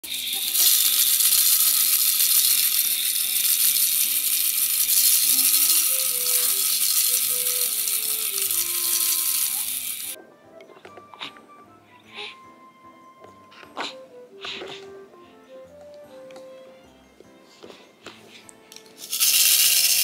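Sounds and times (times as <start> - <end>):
shaker-like hiss: 0.0 - 10.2, 18.9 - 20.0
soft melody with bass: 10.2 - 17.6.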